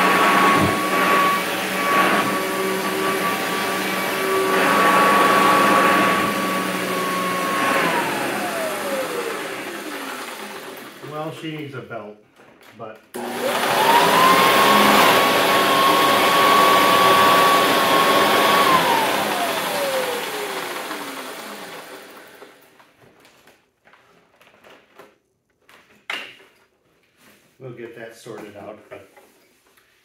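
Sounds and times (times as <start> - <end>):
vacuum cleaner motor whine: 0.0 - 11.4, 13.2 - 22.7.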